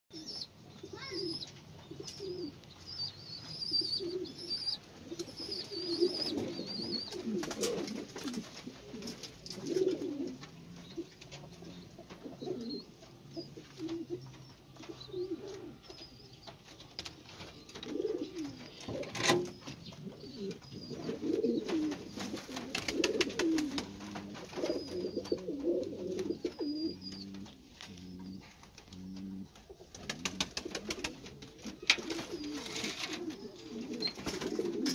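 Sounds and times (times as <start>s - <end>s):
pigeons cooing: 0.1s - 34.9s.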